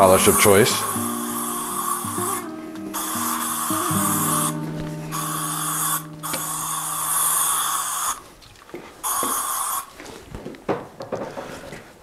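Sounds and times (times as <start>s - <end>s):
aerosol spray hissing: 0.0s - 8.2s, 9.0s - 9.9s.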